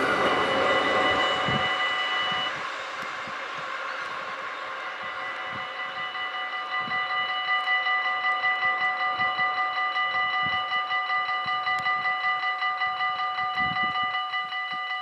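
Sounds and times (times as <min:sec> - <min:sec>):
freight train: 0:00.0 - 0:15.0
level-crossing warning bell: 0:00.0 - 0:15.0.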